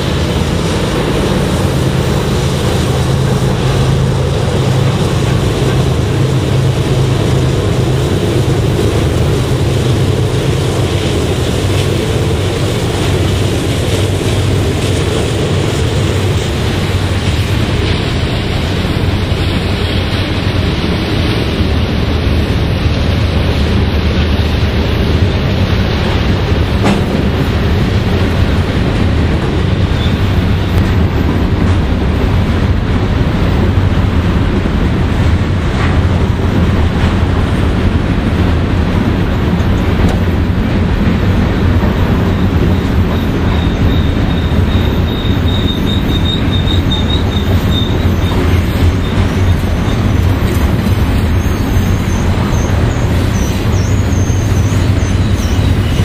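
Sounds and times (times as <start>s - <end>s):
steel wheels rumbling on rail: 0.0s - 56.0s
wheel clicks on rail: 0.0s - 56.0s
high wheel squeal: 29.6s - 31.1s, 41.9s - 56.0s.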